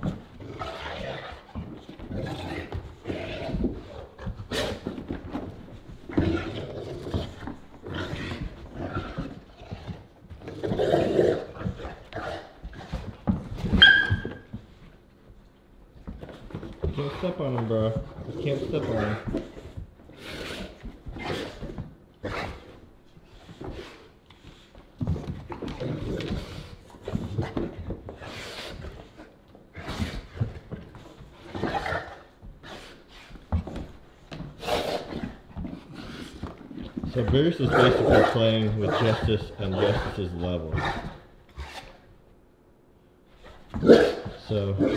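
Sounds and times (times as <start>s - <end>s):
dogs growling: 0.0s - 13.1s, 34.5s - 42.0s
dogs scuffling: 0.0s - 42.2s
thumps of dogs play-fighting: 11.5s - 14.9s
dog squealing: 13.7s - 14.5s.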